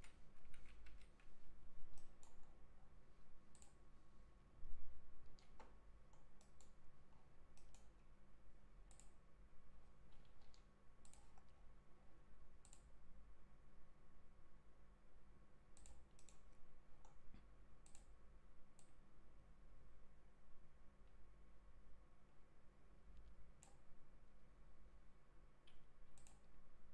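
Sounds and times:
computer mouse clicking: 0.0 - 1.3, 1.9 - 2.6, 3.5 - 3.8, 5.2 - 6.8, 7.5 - 8.1, 8.9 - 9.2, 10.1 - 11.6, 12.6 - 12.9, 15.8 - 17.2, 17.8 - 18.1, 23.2 - 23.9, 25.6 - 26.5
faint steady hum: 0.0 - 26.9.

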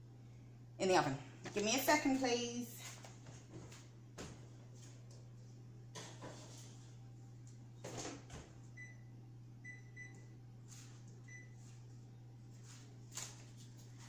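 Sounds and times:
faint steady hum: 0.0 - 14.0
oven control panel beeps: 8.7 - 10.4, 11.2 - 11.6.

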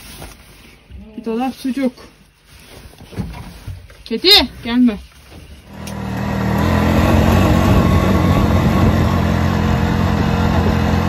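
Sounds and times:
atv engine running: 5.7 - 11.0.

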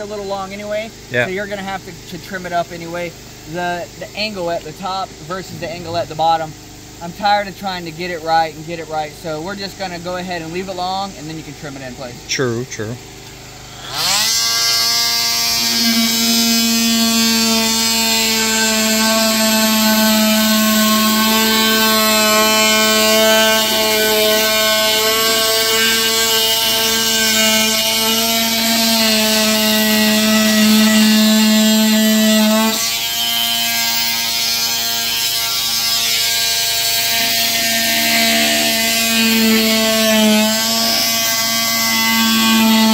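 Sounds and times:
rotary cutting tool whining: 12.8 - 42.9.

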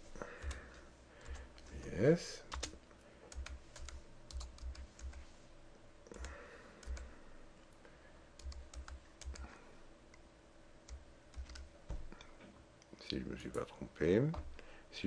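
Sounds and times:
keyboard typing: 2.5 - 5.2, 6.1 - 7.1, 8.4 - 9.5, 10.8 - 11.7.

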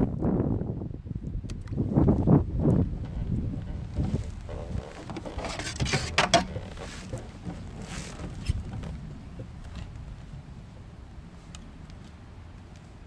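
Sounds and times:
fish splashing and rustling: 2.8 - 13.0.

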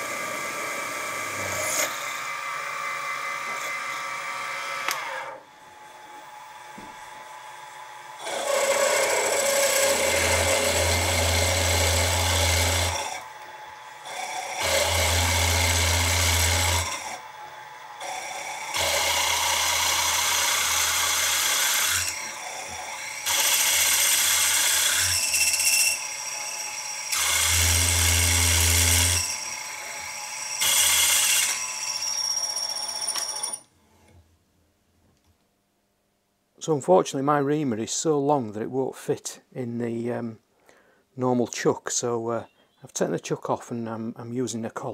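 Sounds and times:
mill drilling metal: 8.0 - 17.2, 18.0 - 33.6
spindle motor running: 18.0 - 33.0.

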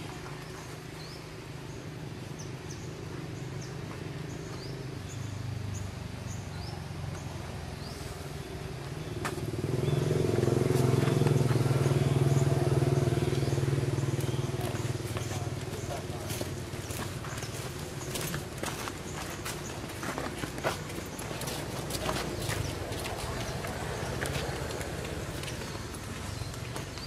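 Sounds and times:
motor engine running: 9.0 - 27.0.

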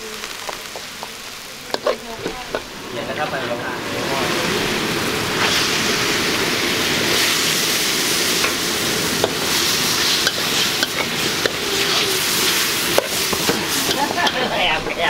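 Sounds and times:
mushrooms sizzling in a wok: 0.0 - 15.0
metal spatula scraping a wok: 9.2 - 14.5.

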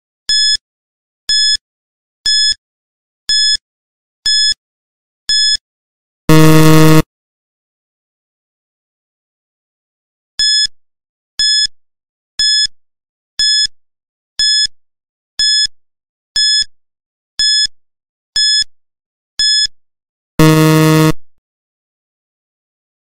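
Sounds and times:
short high electronic beeps: 6.3 - 7.0, 20.4 - 21.2
low buzzer: 6.3 - 7.1, 20.4 - 21.3.

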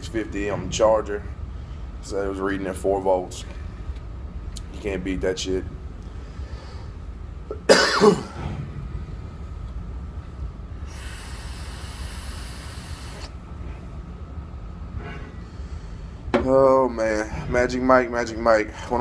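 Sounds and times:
person coughing: 7.5 - 8.4
airy hiss of vape draw: 10.9 - 13.3.

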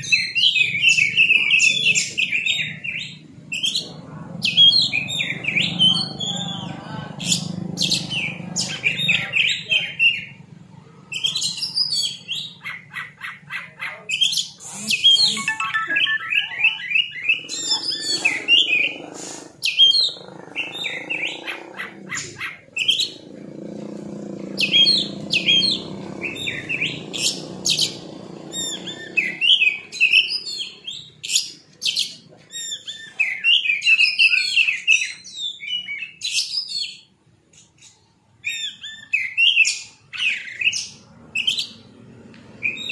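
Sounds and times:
bird singing whistles and chatter: 42.6 - 42.9.

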